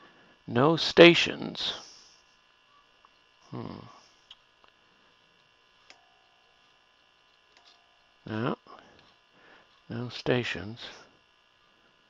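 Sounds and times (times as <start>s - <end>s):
faint steady tone: 1.6s - 12.0s
small clicks: 7.3s - 7.9s.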